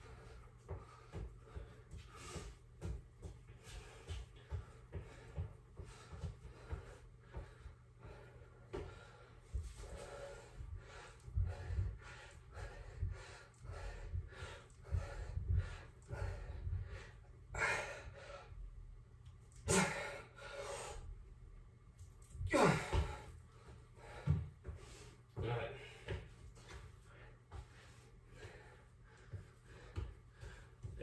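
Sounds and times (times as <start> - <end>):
man panting: 0.0 - 18.7, 19.6 - 21.2, 22.4 - 31.0
man gasping: 19.6 - 21.0, 22.4 - 23.3.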